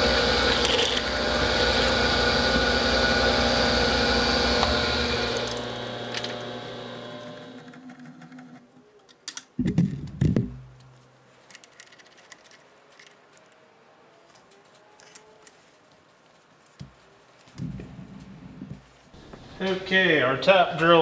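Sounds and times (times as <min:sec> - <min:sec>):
milling machine spindle winding down: 0:00.0 - 0:08.6.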